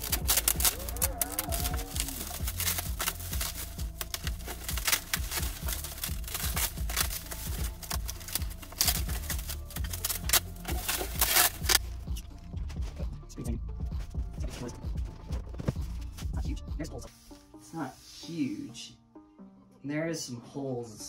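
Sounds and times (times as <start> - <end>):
bubble wrap crinkling: 0.0 - 12.0
background music: 0.0 - 21.0.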